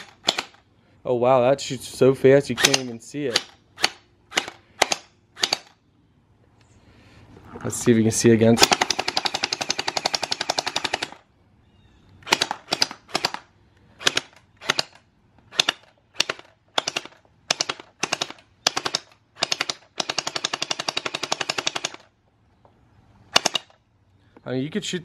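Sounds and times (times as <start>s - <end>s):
gel blaster rapid firing: 8.6s - 11.2s.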